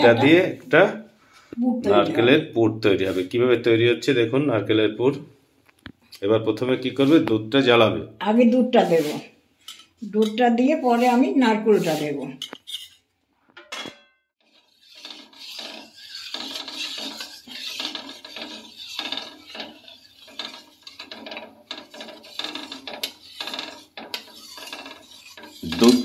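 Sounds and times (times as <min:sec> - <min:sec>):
metal spatula scraping pan: 0:08.4 - 0:26.0.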